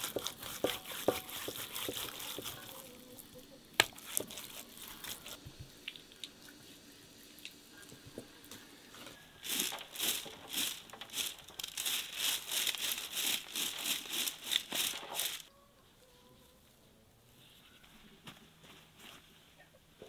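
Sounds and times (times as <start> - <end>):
twig broom sweeping soil: 0.0 - 5.4, 9.0 - 15.5.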